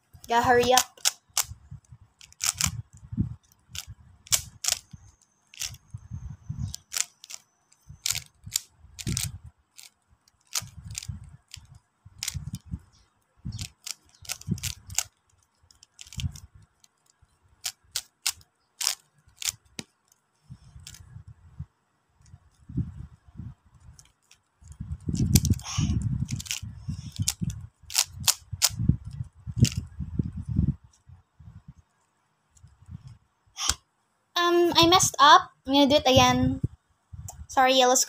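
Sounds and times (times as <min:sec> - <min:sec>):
rubik's cube plastic clicks: 0:00.2 - 0:06.0, 0:06.6 - 0:21.1, 0:23.8 - 0:29.9
hands handling cube thumps: 0:00.7 - 0:01.5, 0:02.2 - 0:02.8, 0:03.8 - 0:05.8, 0:06.7 - 0:12.6, 0:13.6 - 0:20.1, 0:26.2 - 0:28.8, 0:29.6 - 0:29.8.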